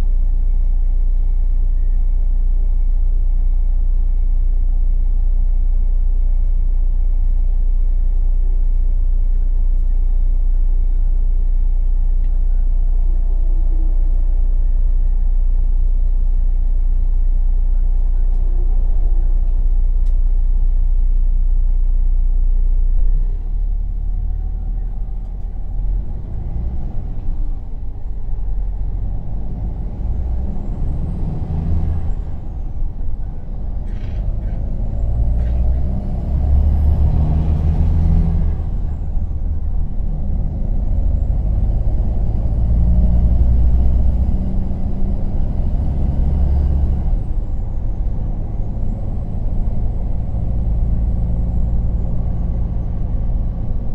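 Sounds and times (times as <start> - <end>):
diesel engine rumbling: 0.0 - 53.9.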